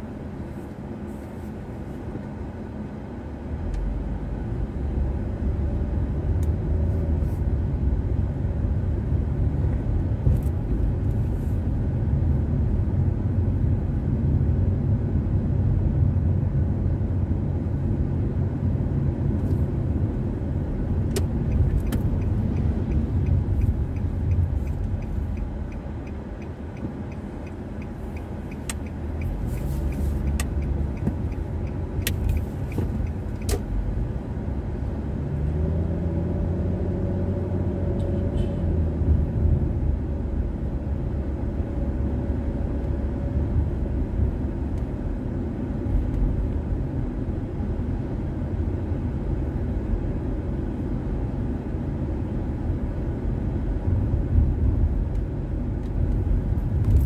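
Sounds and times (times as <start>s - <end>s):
car engine and tyre rumble: 0.0s - 57.0s.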